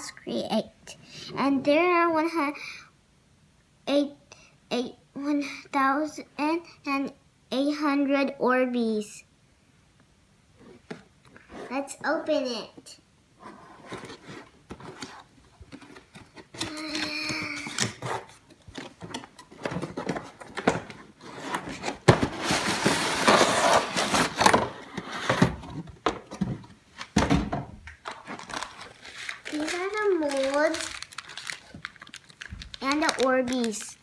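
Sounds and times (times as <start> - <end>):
cardboard and plastic rustling: 13.4 - 34.0.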